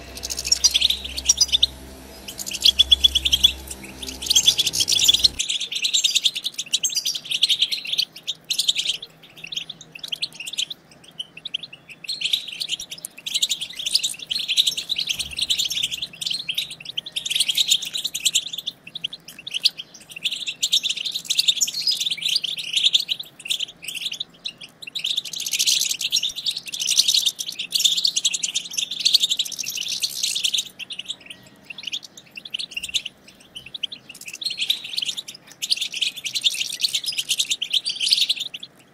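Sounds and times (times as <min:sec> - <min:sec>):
goldfinches twittering: 0:00.0 - 0:05.7.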